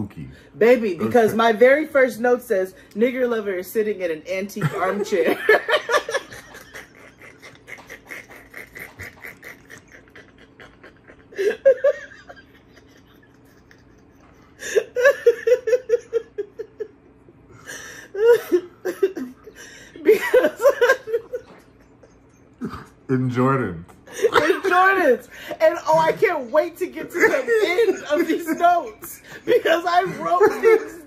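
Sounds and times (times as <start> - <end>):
people laughing: 4.6 - 17.1, 17.7 - 22.9, 24.1 - 31.0.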